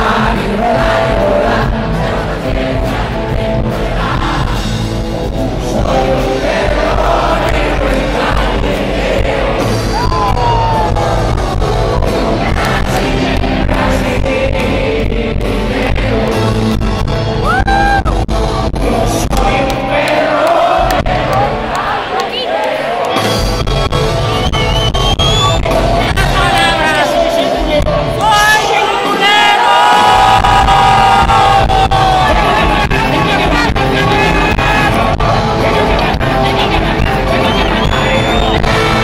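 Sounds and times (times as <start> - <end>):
rock band playing loudly: 0.0 - 22.0, 23.0 - 29.3, 30.0 - 39.0
crowd yelling: 9.1 - 13.4, 17.4 - 18.2, 20.0 - 39.0
person singing: 18.7 - 21.5.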